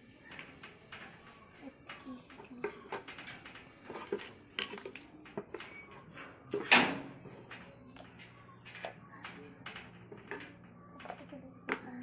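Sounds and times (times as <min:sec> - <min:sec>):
plastic toy dishes tapping on tiles: 0:01.9 - 0:12.0.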